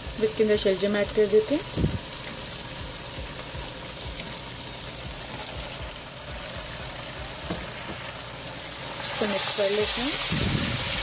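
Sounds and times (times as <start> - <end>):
curry sizzling in a pot: 0.0 - 11.0.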